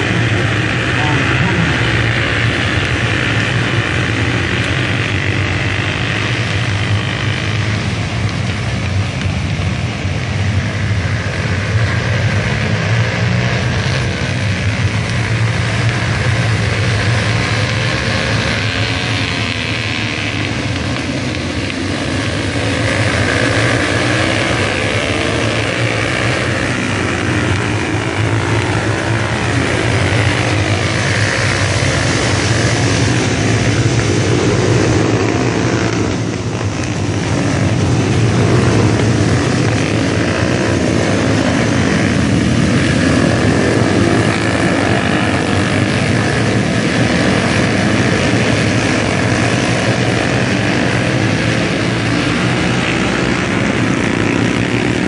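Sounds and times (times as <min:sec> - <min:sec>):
minibike engines buzzing and revving: 0:00.0 - 0:55.0.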